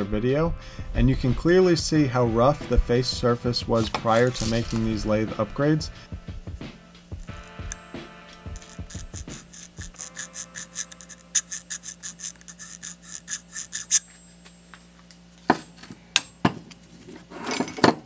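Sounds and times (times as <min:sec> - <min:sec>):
metal point scraping aluminum: 0:03.7 - 0:05.4, 0:07.1 - 0:18.0.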